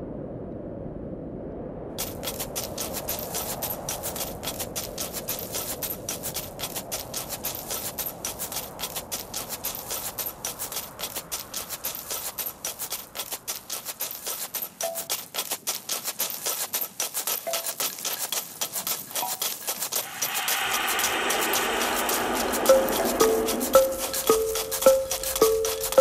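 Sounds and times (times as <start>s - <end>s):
ice clicking and tapping: 10.5s - 20.0s, 22.7s - 26.0s
low rushing noise: 20.0s - 26.0s.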